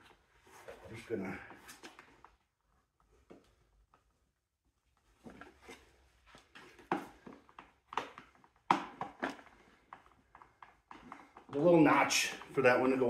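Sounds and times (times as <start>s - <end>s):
plastic parts clicking and knocking: 6.6s - 11.8s.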